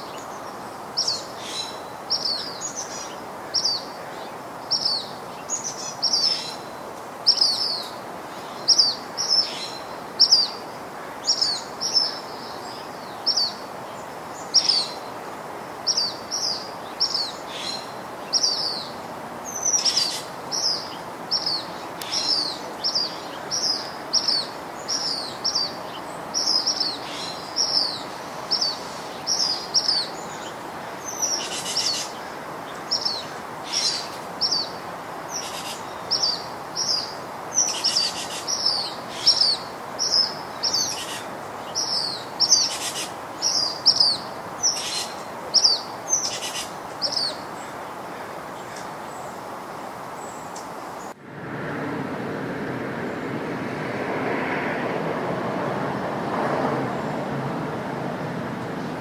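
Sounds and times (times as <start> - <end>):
outdoor background hiss: 0.0 - 59.0
bird chirping: 15.8 - 47.8.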